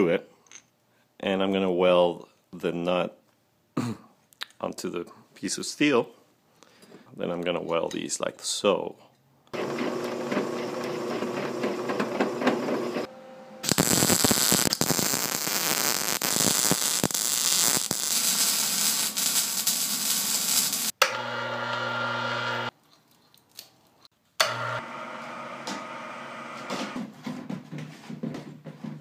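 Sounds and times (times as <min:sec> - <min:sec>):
arc welding crackling: 0:13.6 - 0:21.0.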